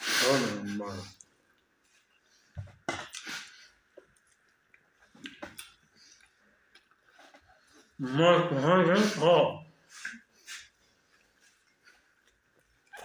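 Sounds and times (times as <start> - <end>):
chewing and wet mouth sounds: 3.0 - 7.7.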